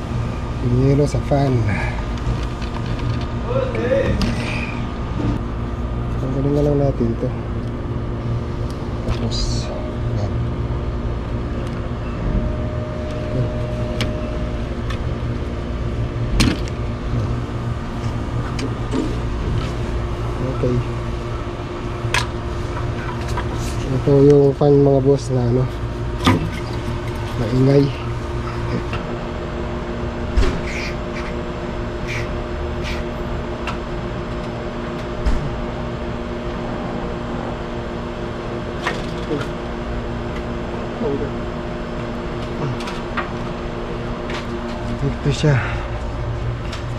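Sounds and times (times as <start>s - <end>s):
low mechanical hum: 0.0s - 46.9s
clicks and rattles of connectors: 2.2s - 3.3s.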